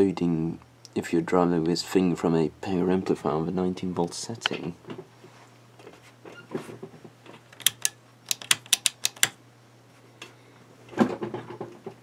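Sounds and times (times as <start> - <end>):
handling noise: 5.9 - 9.4
sharp clicks: 7.5 - 9.4.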